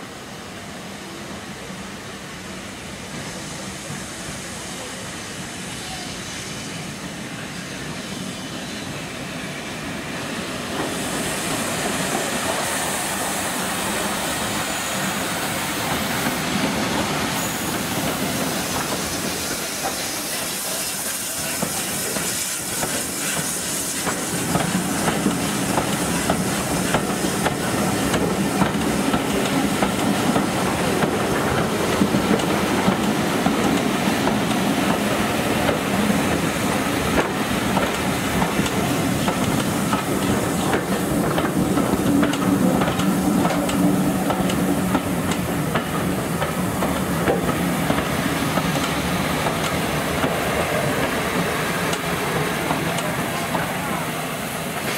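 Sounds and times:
steam locomotive hissing: 0.0s - 54.9s
train wheels clattering on rails: 10.7s - 54.0s.

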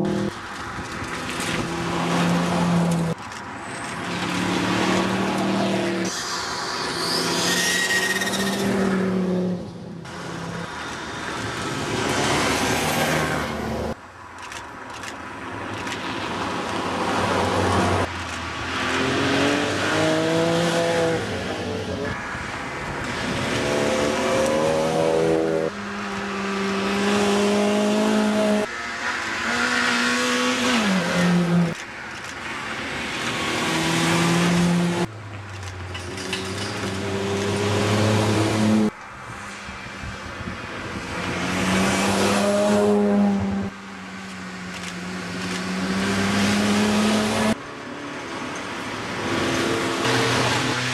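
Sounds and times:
rally cars revving past: 18.7s - 21.9s, 41.1s - 43.7s, 45.6s - 47.6s.

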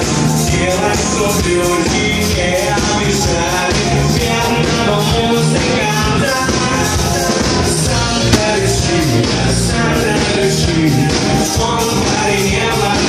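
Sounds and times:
steady drum beat: 8.3s - 9.4s.

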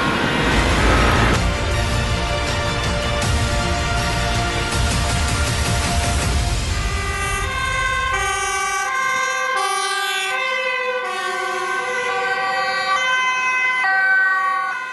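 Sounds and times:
two-tone fire engine sirens: 0.0s - 1.9s, 6.2s - 14.9s
music: 0.5s - 8.2s.

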